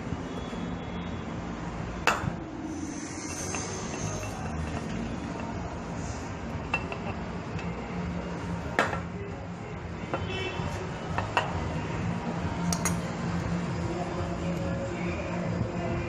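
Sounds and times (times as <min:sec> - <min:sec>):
metallic clicks of hose fittings: 0:12.7 - 0:13.0.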